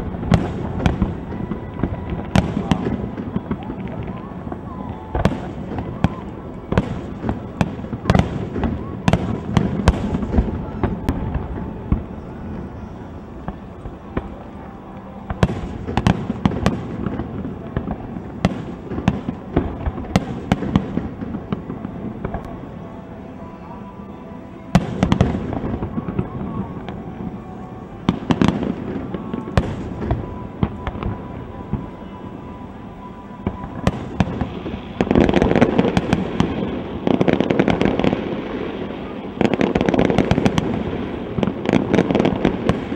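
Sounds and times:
fireworks bangs and crackles: 0.0 - 42.9.

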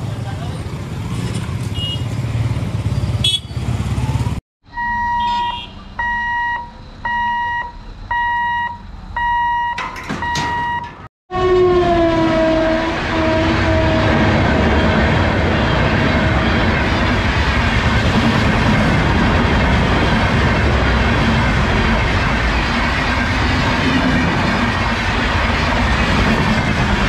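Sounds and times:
motorcycles rumbling: 0.0 - 4.4
road traffic rumbling: 0.0 - 27.0
electronic warning beep: 4.7 - 10.9
train horn blast: 11.3 - 14.4
train coaches rushing: 12.4 - 27.0.

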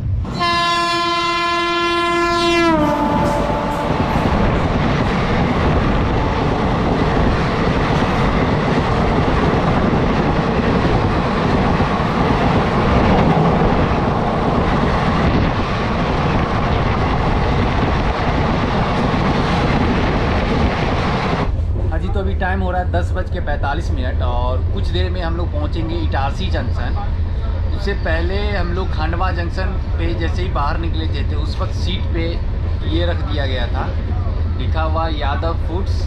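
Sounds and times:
train coaches rumbling past: 0.0 - 36.0
train horn: 0.3 - 4.7.

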